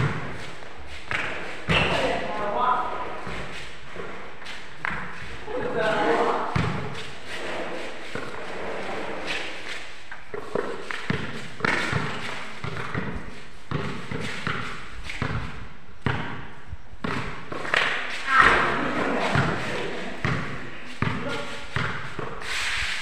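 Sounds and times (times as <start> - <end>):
basketball bouncing on concrete: 0.0 - 2.5, 3.2 - 4.2, 4.8 - 7.2, 10.3 - 22.4.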